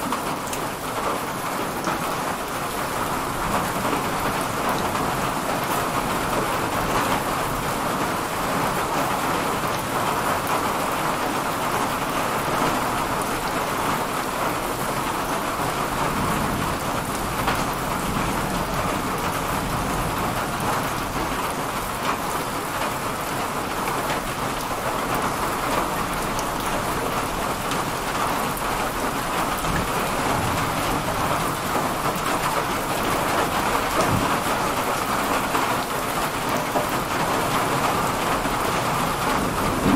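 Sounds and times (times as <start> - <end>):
heavy rain pouring: 0.0 - 39.9
thunder rumbling: 38.1 - 39.9.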